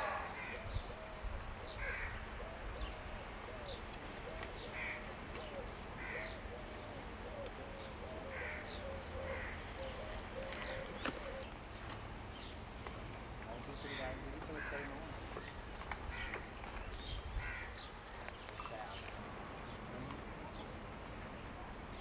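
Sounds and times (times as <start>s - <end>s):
lower bird call: 0.0s - 11.8s
birds cawing: 0.0s - 11.9s, 13.7s - 18.4s.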